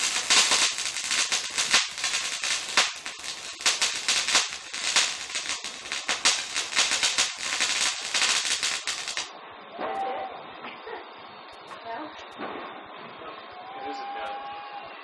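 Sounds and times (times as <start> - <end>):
firework fountain hissing and crackling: 0.0 - 9.4.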